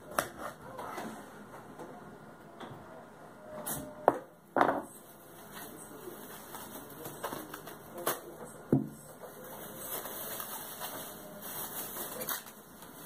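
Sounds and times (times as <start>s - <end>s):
plastic bag rustling: 4.9s - 8.3s, 9.2s - 13.0s.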